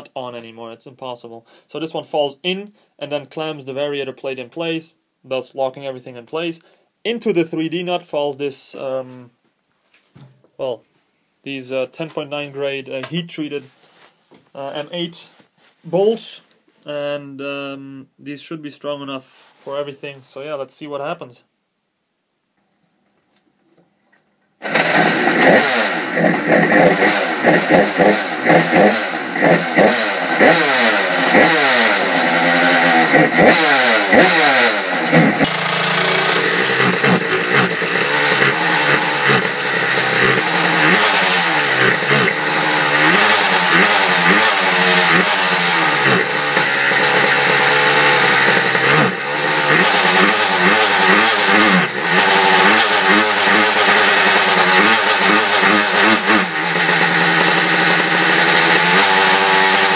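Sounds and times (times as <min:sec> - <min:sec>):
electric drill spinning engine: 0:24.6 - 0:59.9
two-stroke scooter engine revving: 0:24.6 - 0:59.9.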